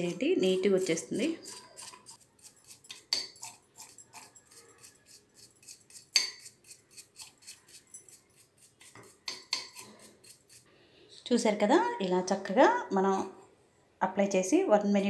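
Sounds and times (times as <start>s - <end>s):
toothbrush scrubbing metal: 0.0s - 10.7s.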